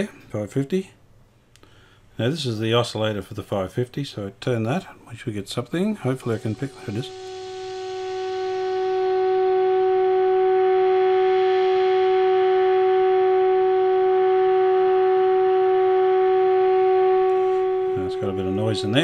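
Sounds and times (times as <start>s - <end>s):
low test tone from radio: 5.9s - 19.0s
hiss: 6.0s - 9.1s.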